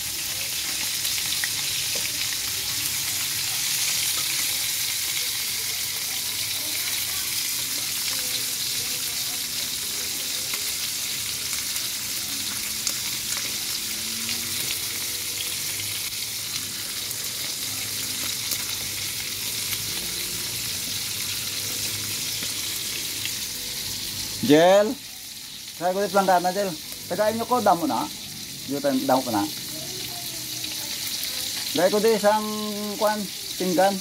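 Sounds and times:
fish sizzling in hot oil: 0.0 - 34.0.

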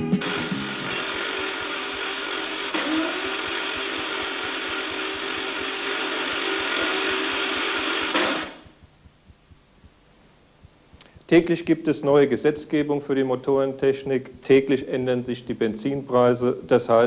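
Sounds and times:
machine motor whining and grinding: 0.0 - 8.8.

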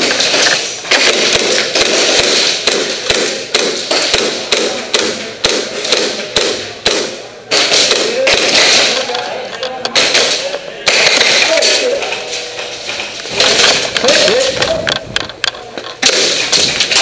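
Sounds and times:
airsoft gunfire cracks: 0.9 - 9.0, 16.0 - 17.0.

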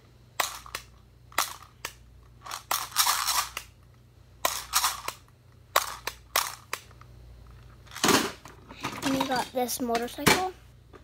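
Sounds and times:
plastic toy clattering: 7.9 - 10.4.

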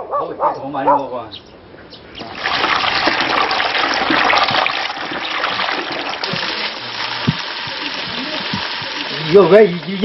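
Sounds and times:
water pouring and splashing: 2.2 - 10.0.

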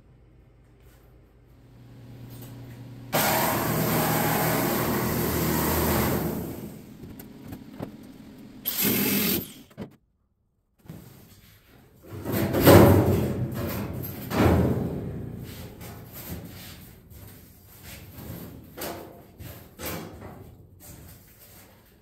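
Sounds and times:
sheet-metal clunks and rattles: 12.1 - 16.2.

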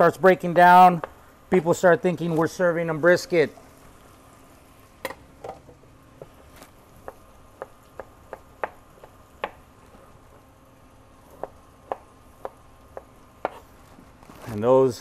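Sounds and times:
knife chopping on plastic board: 7.0 - 9.7, 11.3 - 13.7.

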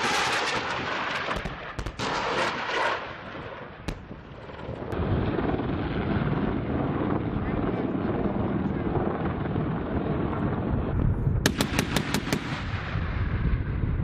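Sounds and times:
low helicopter rumble: 3.2 - 14.0
rapid gunfire bursts: 11.5 - 12.7.

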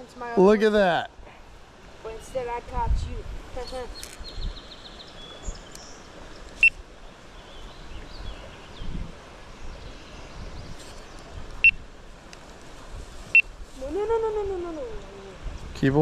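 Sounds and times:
stream: 0.0 - 16.0
birds singing and chirping: 3.6 - 6.5.

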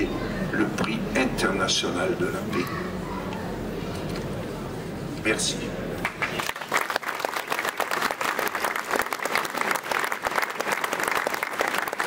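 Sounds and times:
crowd applauding: 6.0 - 12.0.

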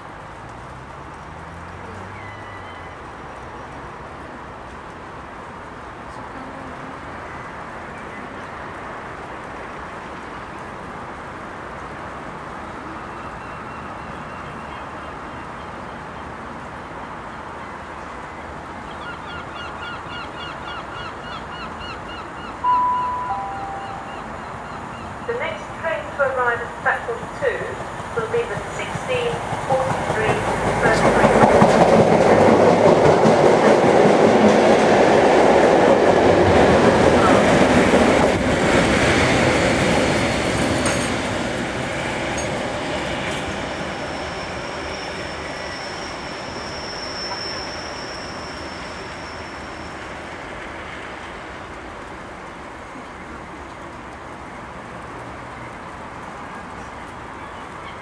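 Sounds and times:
bird honking calls: 19.0 - 25.7
approaching train rushing: 22.3 - 52.7
faint high wheel squeal: 43.7 - 50.2.

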